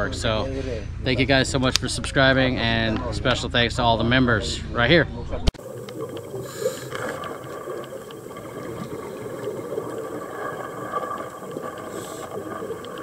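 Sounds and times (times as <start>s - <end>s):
underwater motor hum: 5.6s - 13.0s.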